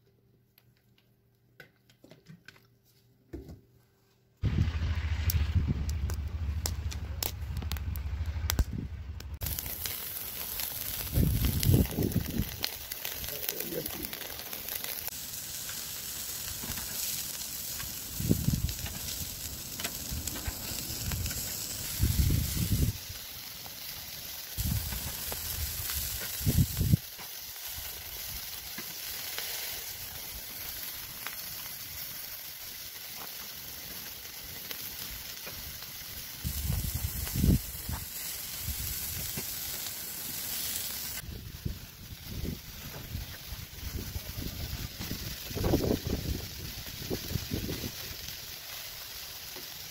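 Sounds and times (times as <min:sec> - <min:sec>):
low rumbles: 0:04.4 - 0:14.3, 0:17.8 - 0:23.2
meat sizzling on a grill: 0:09.4 - 0:49.9.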